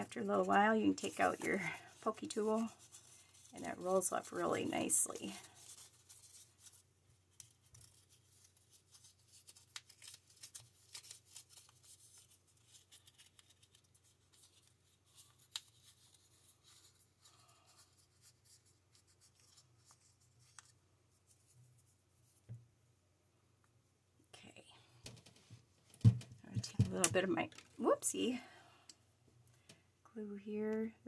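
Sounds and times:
paper rustling and crackling: 0.2s - 20.8s.

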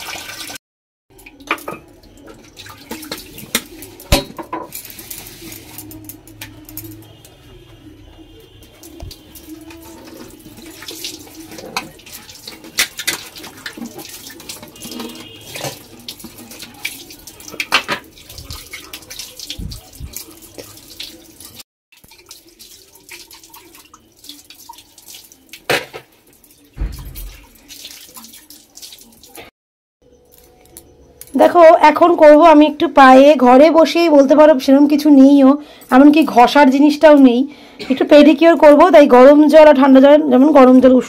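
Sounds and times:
water running and splashing: 0.0s - 29.5s.

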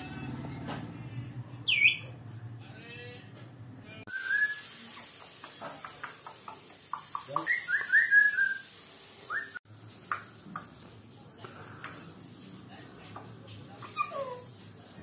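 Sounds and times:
parrot whistling: 1.7s - 2.1s, 4.1s - 4.7s, 7.4s - 8.7s, 9.3s - 9.6s.

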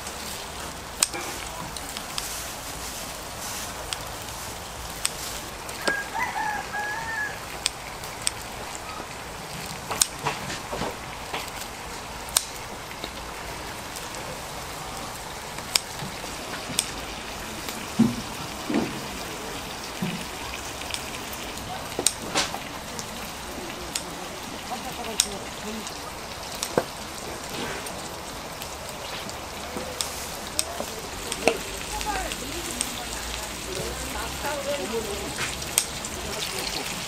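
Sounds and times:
steady background hiss: 0.0s - 37.0s
rooster crowing: 5.8s - 7.6s
sharp clicks and knocks: 9.7s - 11.6s.

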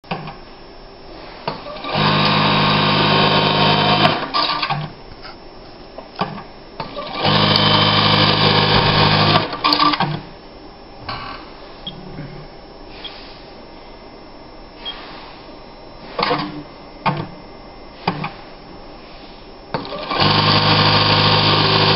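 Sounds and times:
sewing machine running: 1.6s - 4.9s, 6.8s - 10.2s, 19.8s - 21.9s.

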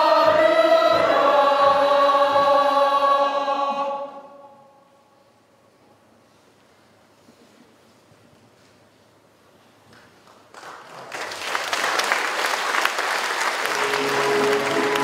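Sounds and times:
audience applause: 10.5s - 15.0s
sustained musical notes: 13.7s - 15.0s.

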